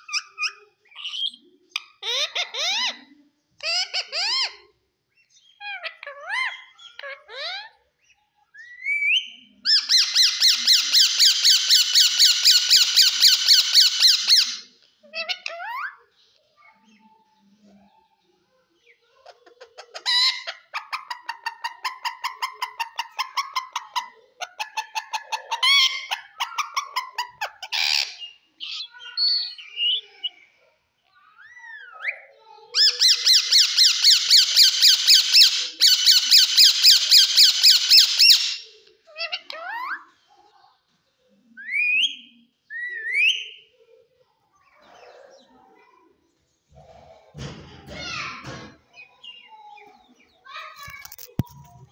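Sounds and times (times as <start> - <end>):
parakeet harsh squawking: 9.7 - 14.6, 32.8 - 38.6.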